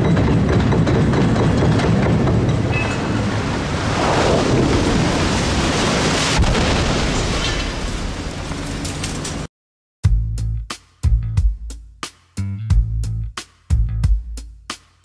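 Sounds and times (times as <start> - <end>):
concrete pier crashing down: 3.0 - 9.5.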